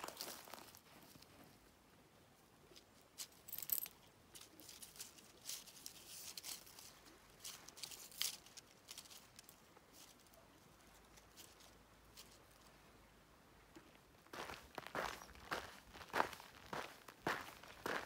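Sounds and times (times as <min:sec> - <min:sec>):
dry leaves crackling: 0:00.0 - 0:01.2, 0:03.2 - 0:12.8.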